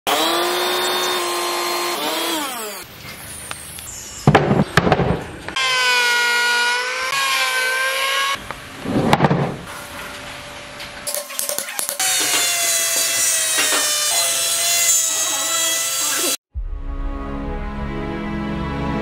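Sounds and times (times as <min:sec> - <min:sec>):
electric chainsaw cutting wood: 0:00.1 - 0:02.9, 0:05.6 - 0:08.4, 0:12.0 - 0:16.4
power tool winding down: 0:00.1 - 0:02.9, 0:12.0 - 0:16.4.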